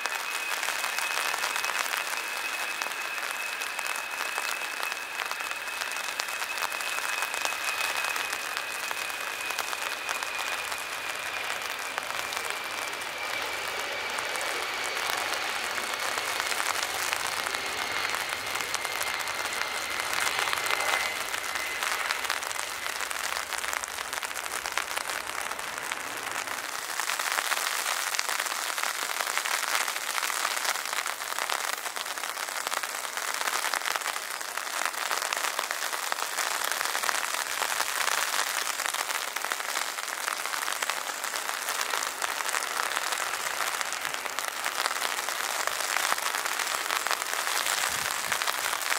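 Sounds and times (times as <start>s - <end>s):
heavy rain hissing: 0.0s - 48.9s
jet engines whining overhead: 0.0s - 48.9s.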